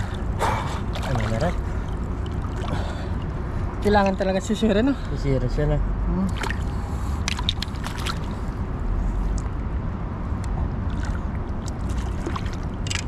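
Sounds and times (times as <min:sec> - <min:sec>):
small splashes and drips: 0:00.0 - 0:04.2, 0:06.2 - 0:08.5, 0:10.9 - 0:13.0
water sloshing and splashing: 0:00.0 - 0:04.7, 0:06.2 - 0:08.7, 0:10.6 - 0:13.0
steady low rumble: 0:00.0 - 0:13.0.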